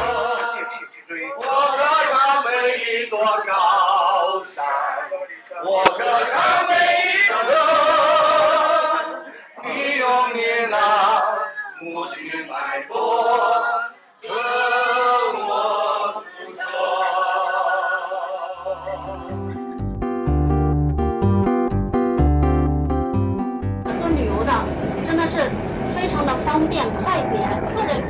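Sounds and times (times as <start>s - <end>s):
group singing unaccompanied: 0.0s - 19.6s.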